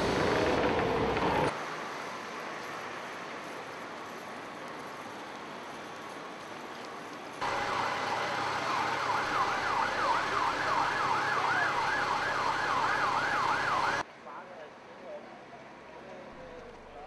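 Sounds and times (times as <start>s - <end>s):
siren yelping: 7.4s - 14.0s.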